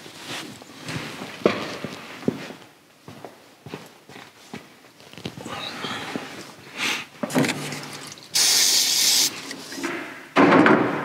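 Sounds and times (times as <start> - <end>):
spray hissing: 8.3 - 9.7.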